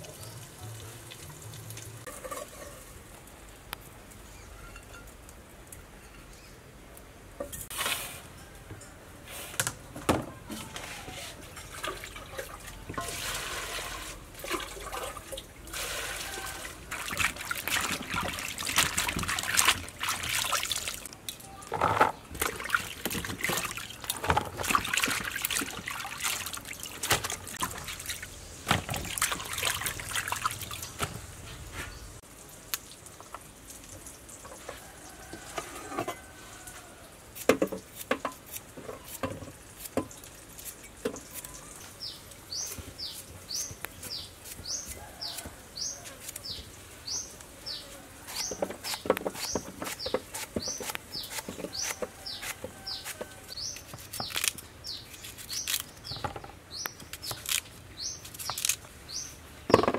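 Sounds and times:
water splashing in a colander: 0:11.4 - 0:21.1, 0:22.2 - 0:31.1.

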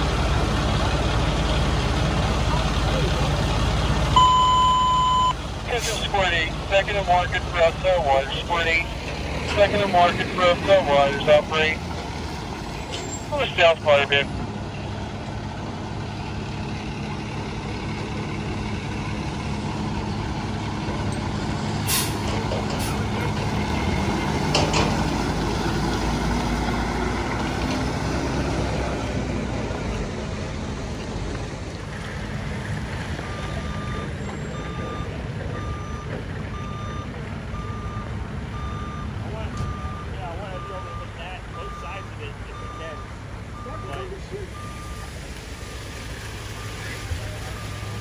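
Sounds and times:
fire truck diesel engine running: 0:00.0 - 0:48.0
reverse alarm beeping: 0:04.2 - 0:06.2, 0:33.2 - 0:45.7
air brakes hissing: 0:21.8 - 0:23.0.

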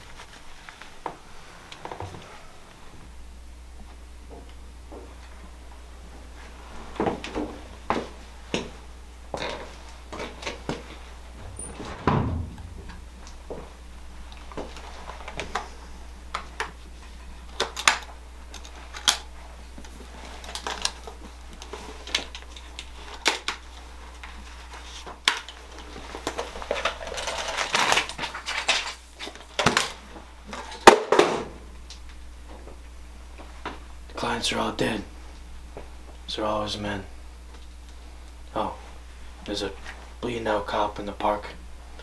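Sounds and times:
low hum: 0:00.0 - 0:29.4.

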